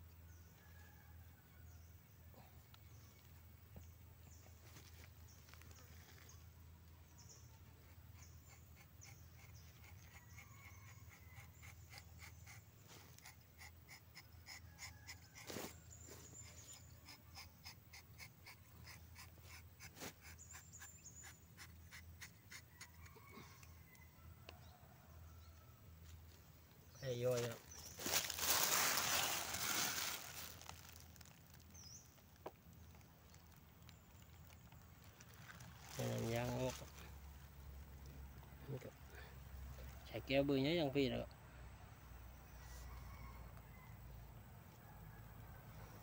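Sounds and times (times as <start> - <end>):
knife scraping bark: 8.1 - 23.7
bird chirps: 20.2 - 24.0.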